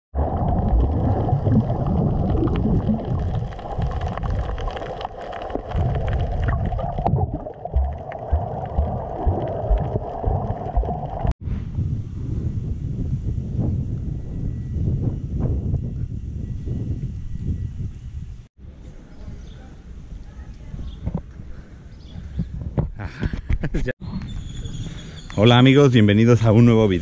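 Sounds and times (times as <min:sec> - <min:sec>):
underwater rushing and gurgling: 0:00.1 - 0:11.4
underwater crackles and clicks: 0:00.2 - 0:11.4.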